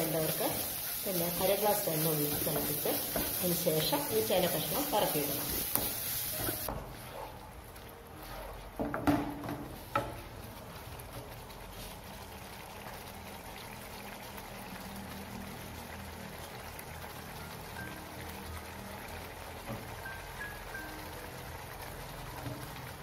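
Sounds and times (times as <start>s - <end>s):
gravy simmering and bubbling: 6.6s - 20.4s.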